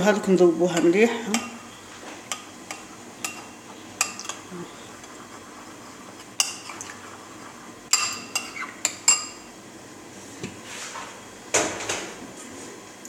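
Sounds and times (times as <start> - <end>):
metal spoon clinking on ceramic bowl: 7.9 - 9.4.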